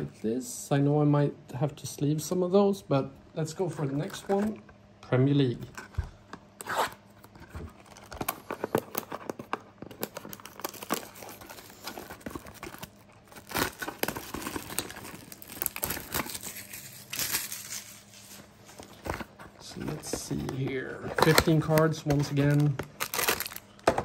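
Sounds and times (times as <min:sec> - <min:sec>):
plastic shrink-wrap crinkling and tearing: 0:07.7 - 0:23.8.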